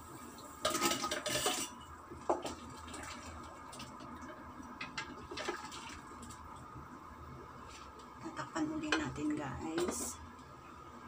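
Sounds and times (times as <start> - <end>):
metal bowl clattering on pot: 0.6 - 2.5.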